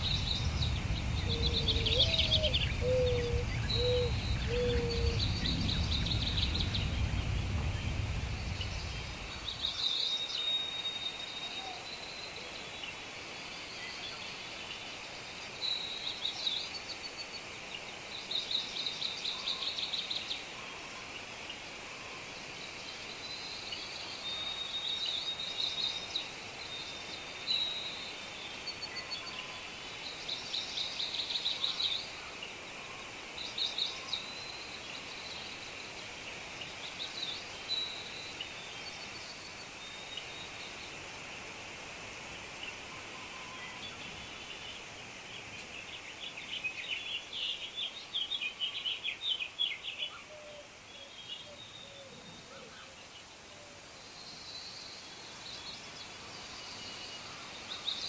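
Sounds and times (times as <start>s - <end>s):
songbirds trilling: 0.0s - 12.9s
steady background hiss: 0.0s - 58.0s.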